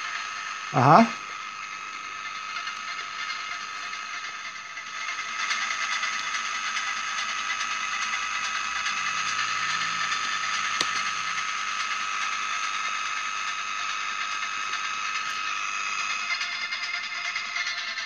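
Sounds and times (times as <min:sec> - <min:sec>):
radio hiss with high whistle: 0:00.0 - 0:11.5.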